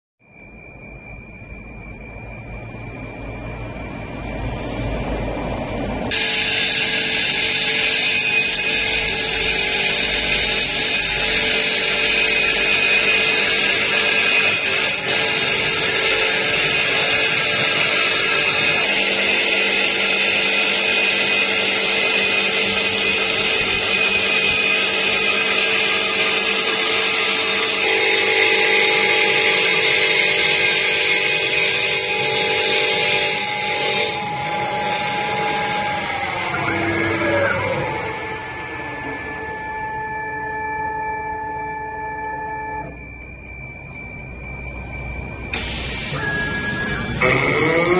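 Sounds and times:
lathe router whining: 0:01.1 - 0:47.9
tool cutting wood: 0:06.1 - 0:38.6, 0:45.5 - 0:47.9.

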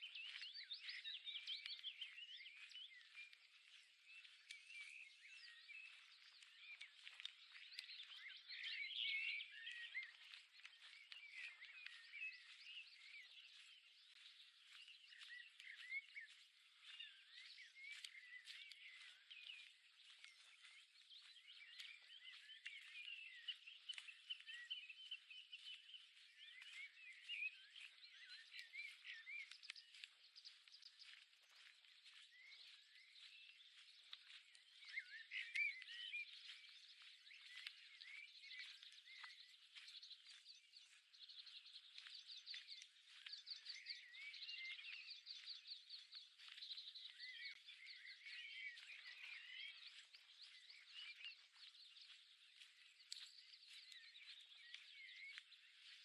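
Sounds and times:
songbirds chirping: 0:00.0 - 0:56.0.

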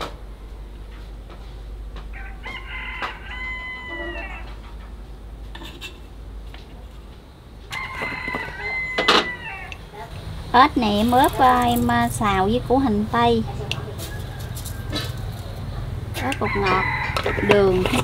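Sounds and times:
rooster crowing: 0:02.0 - 0:04.7, 0:07.6 - 0:10.1, 0:13.7 - 0:18.0.

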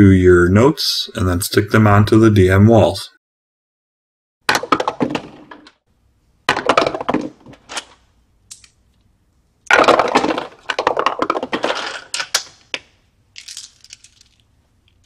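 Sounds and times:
dice clattering through tower: 0:09.7 - 0:15.0.

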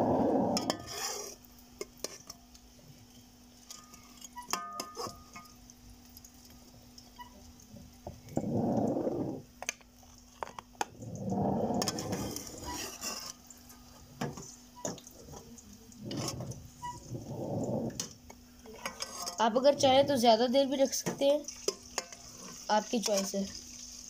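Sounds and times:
faint steady hum: 0:00.0 - 0:22.7.

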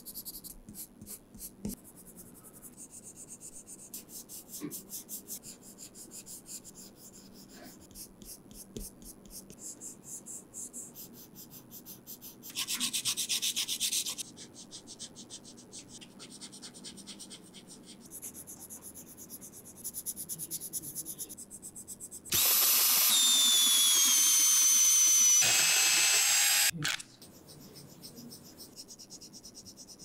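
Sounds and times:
pencil scratching on paper: 0:00.0 - 0:30.0
electric pencil sharpener grinding: 0:22.3 - 0:27.0.

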